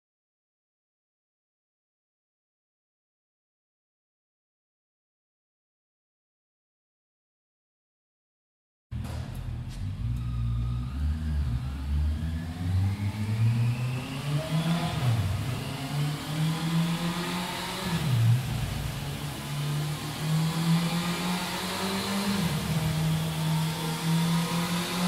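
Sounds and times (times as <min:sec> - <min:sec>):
motorcycle engine running: 0:09.0 - 0:25.0.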